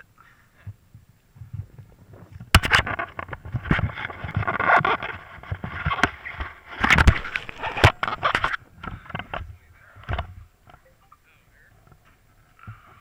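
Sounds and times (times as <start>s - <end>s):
hands rubbing camera microphone: 1.4s - 9.4s.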